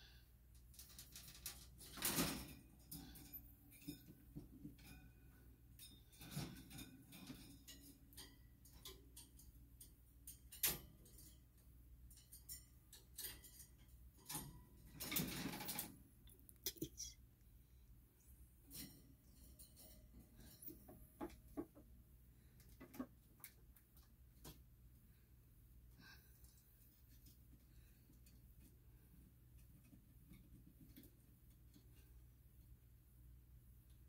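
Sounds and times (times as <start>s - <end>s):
claws scrabbling on wire cage: 0.6s - 5.0s, 5.7s - 16.8s.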